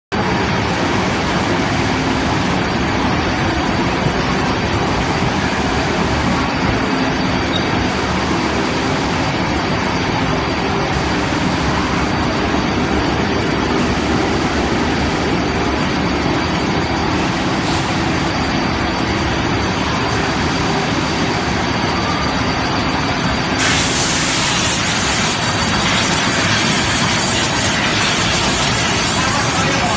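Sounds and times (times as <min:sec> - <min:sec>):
high whine: 0:00.1 - 0:29.9
printing machine mechanical din: 0:00.1 - 0:29.9
loud hiss: 0:23.6 - 0:29.9.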